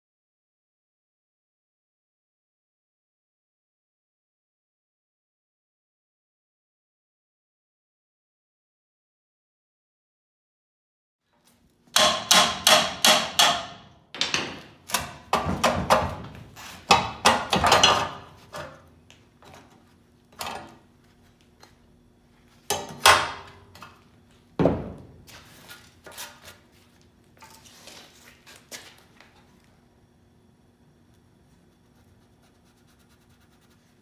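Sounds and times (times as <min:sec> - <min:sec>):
hammer striking metal: 0:11.9 - 0:15.8.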